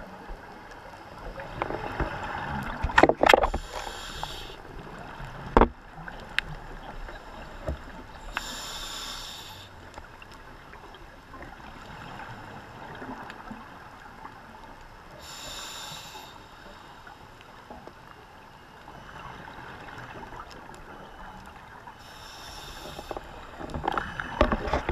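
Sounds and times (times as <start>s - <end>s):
faint clicks: 5.2s - 11.5s, 19.8s - 21.7s, 22.4s - 24.9s.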